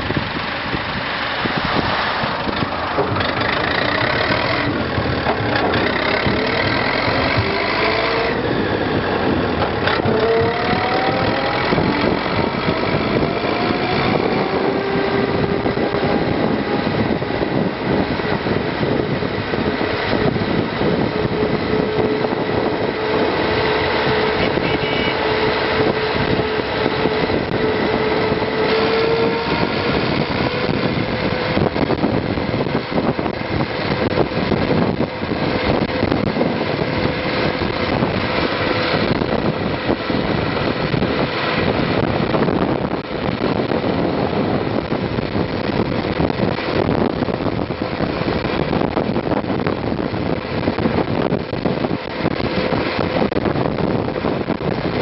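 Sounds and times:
steady whine: 0.0 - 55.0
tractor diesel engine running: 0.0 - 55.0
tyres and rattles: 0.0 - 55.0
wind noise: 0.0 - 55.0.

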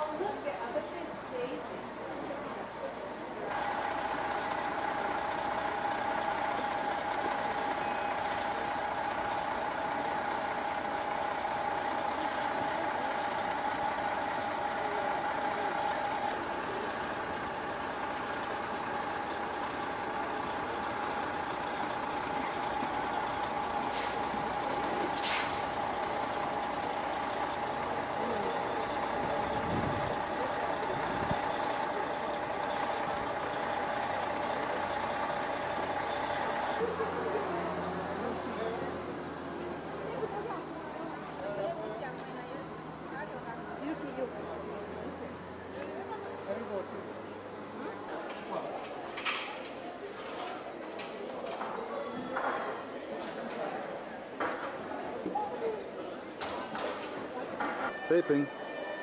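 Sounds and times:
bus engine idling whine: 0.0 - 59.0
air brake hisses: 23.9 - 24.3, 25.2 - 25.7.

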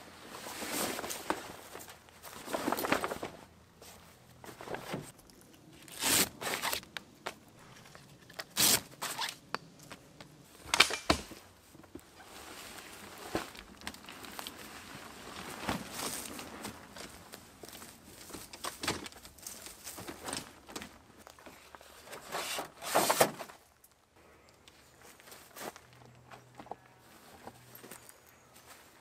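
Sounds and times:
heavy fabric rustling and crinkling: 0.0 - 7.7, 11.6 - 23.2.

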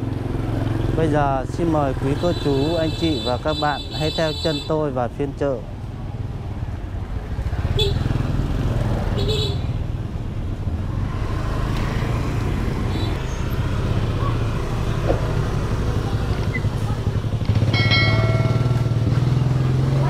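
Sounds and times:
street noise: 0.0 - 20.0
motorbike engine running: 15.4 - 20.0
steady high tone: 17.7 - 19.2.

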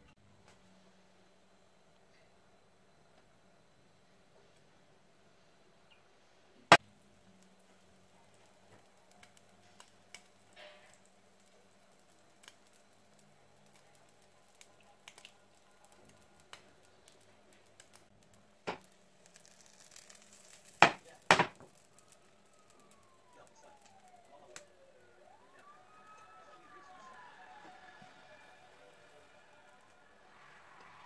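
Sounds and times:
batter sizzling in frying pan: 6.7 - 24.7.

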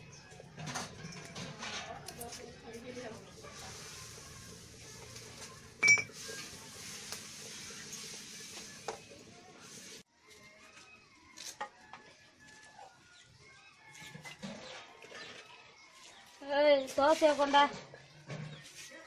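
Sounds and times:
ladle clinking in clay pot: 5.8 - 6.2
metal utensils clinking: 5.8 - 6.6.

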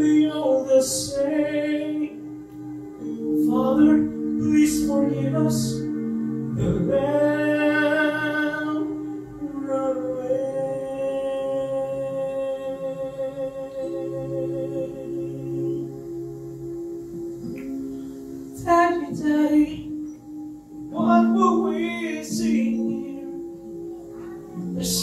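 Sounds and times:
man singing into a microphone: 0.0 - 2.2, 3.4 - 15.9, 18.6 - 19.9, 20.9 - 23.4, 24.8 - 25.0
sustained accompaniment chords: 0.0 - 25.0.

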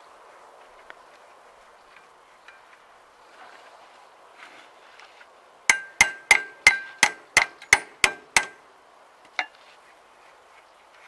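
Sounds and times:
hammer ringing on metal: 5.7 - 8.6.

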